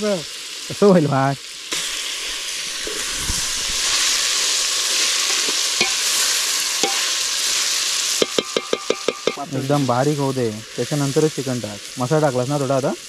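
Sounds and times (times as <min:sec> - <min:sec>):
masala sizzling in oil: 0:00.0 - 0:13.0.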